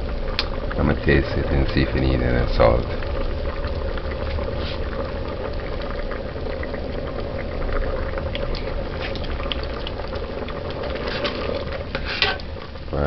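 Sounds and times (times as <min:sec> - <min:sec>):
stew boiling and bubbling: 0:00.0 - 0:13.0.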